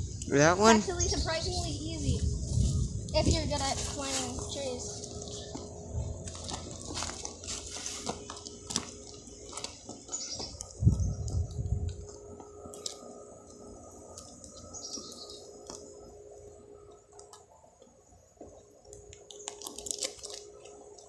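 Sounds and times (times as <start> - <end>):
faint steady hum: 0.0 - 21.0
scuffs on tree bark: 2.6 - 10.6.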